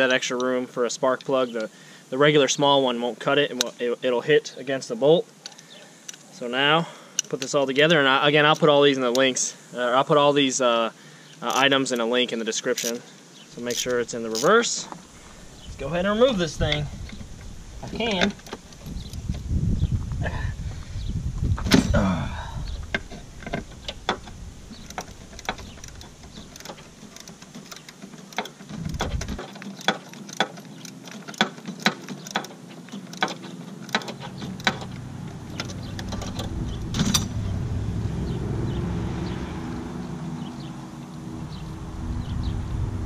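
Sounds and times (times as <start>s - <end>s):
socket wrench ratchet clicking: 12.7s - 13.0s, 13.7s - 14.6s, 23.5s - 36.5s
low vehicle hum: 15.2s - 27.5s, 33.4s - 43.0s.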